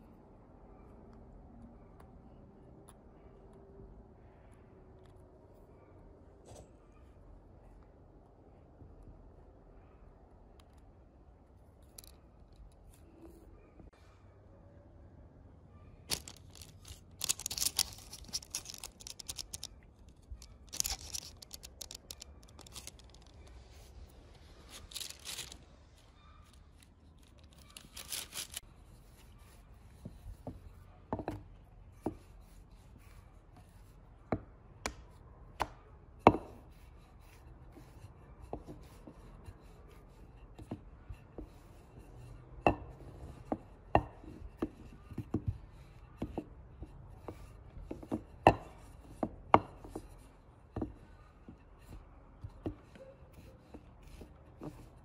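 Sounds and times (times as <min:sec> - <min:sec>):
baking paper crackling: 0:16.1 - 0:28.6
rolling pin rolling dough: 0:35.6 - 0:55.0.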